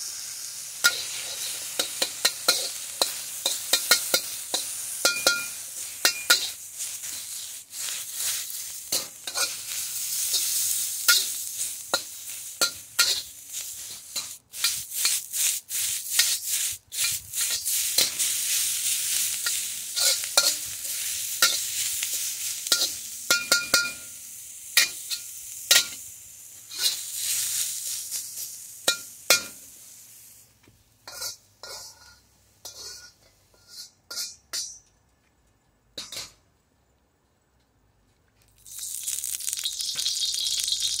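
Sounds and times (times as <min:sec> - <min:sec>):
vegetables sizzling in a wok: 0:00.0 - 0:34.8, 0:38.5 - 0:41.0
metal spatula scraping a wok: 0:00.7 - 0:24.2, 0:24.8 - 0:29.7, 0:31.0 - 0:34.8.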